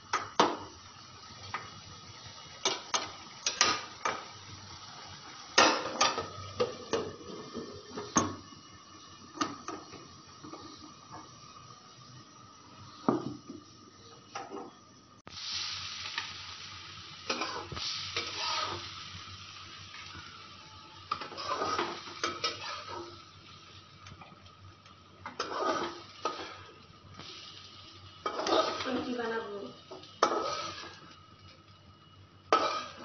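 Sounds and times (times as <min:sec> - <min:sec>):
hot oil sizzling in a wok: 0:00.0 - 0:33.0
spatula scraping and knocking pan: 0:21.1 - 0:23.1, 0:25.2 - 0:26.7, 0:28.2 - 0:29.0, 0:29.9 - 0:31.1, 0:32.5 - 0:33.0.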